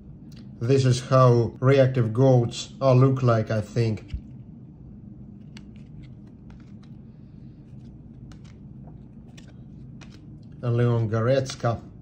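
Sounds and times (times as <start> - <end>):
low background hum: 0.0 - 12.0
trading cards being handled: 3.6 - 4.5, 5.2 - 10.8.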